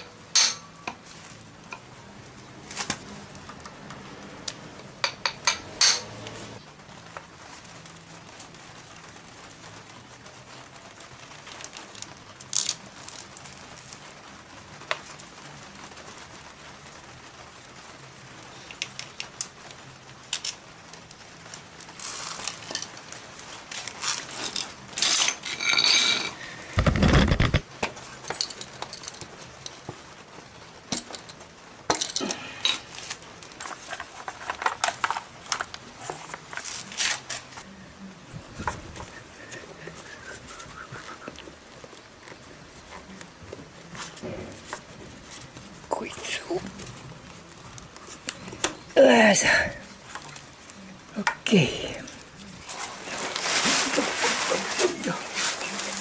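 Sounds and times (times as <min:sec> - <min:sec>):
metal tools clinking: 0:24.4 - 0:26.4.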